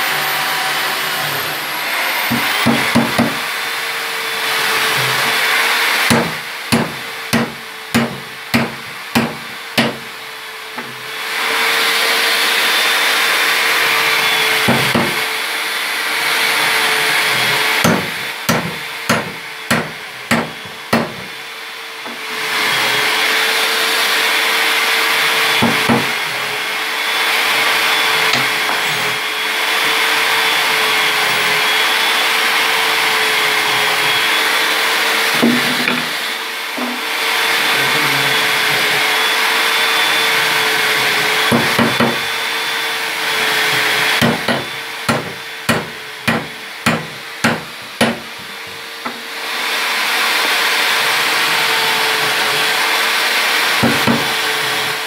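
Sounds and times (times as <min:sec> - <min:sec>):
whirring hum: 0:35.2 - 0:42.4.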